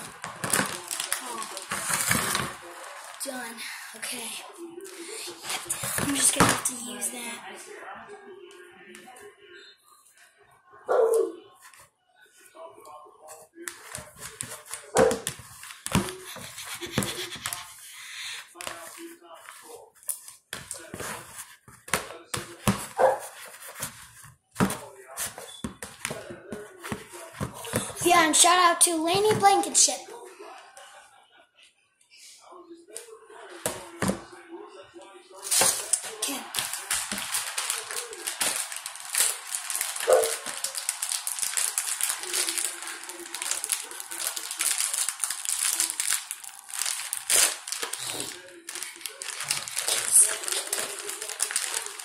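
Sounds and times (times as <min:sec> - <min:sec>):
plastic packet crinkling: 0:00.0 - 0:03.5, 0:35.4 - 0:52.0.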